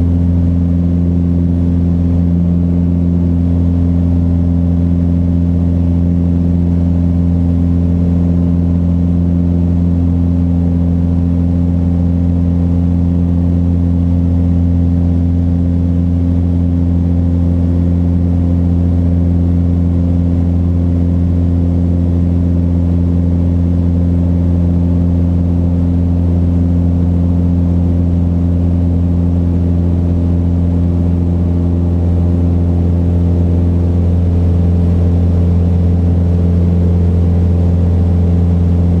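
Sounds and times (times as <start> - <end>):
airplane engine droning in cabin: 0.0 - 39.0.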